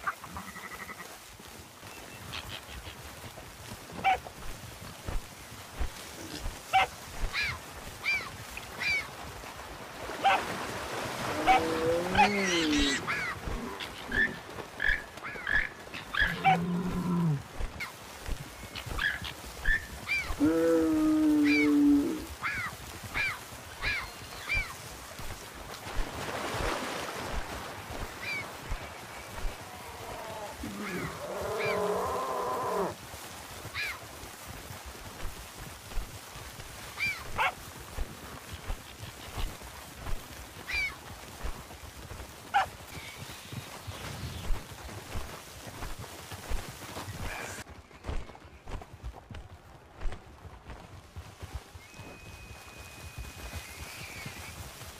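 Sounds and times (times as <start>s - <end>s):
long low animal calls: 11.2s - 17.4s, 20.1s - 24.7s, 29.3s - 33.0s.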